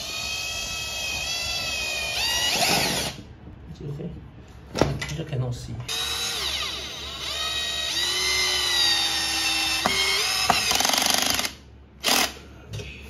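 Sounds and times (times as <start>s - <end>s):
drill rattling: 0.0s - 3.2s, 5.9s - 12.4s
power drill whining: 0.0s - 3.2s, 5.9s - 12.4s.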